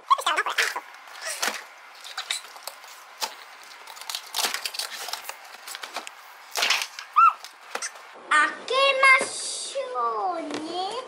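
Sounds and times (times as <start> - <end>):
plastic crinkling: 0.3 - 8.1
tape peeling and tearing: 0.6 - 8.0.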